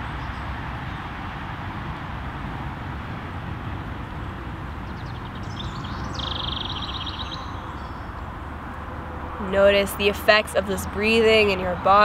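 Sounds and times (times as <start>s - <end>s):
outdoor rumble and hiss: 0.0s - 12.0s
small bird chirping: 4.8s - 8.4s
bird trilling: 4.9s - 8.4s.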